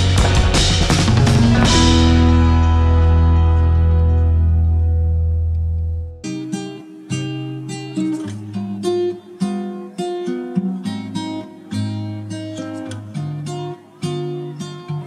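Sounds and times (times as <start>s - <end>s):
low bass notes: 0.0s - 6.2s
acoustic guitar melody: 0.0s - 15.0s.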